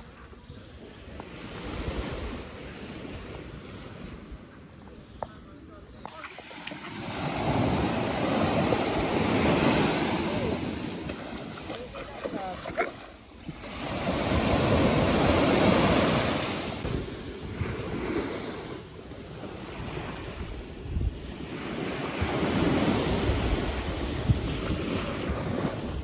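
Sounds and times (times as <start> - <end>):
waves washing onto beach: 0.0 - 26.0
wind buffeting microphone: 13.4 - 26.0.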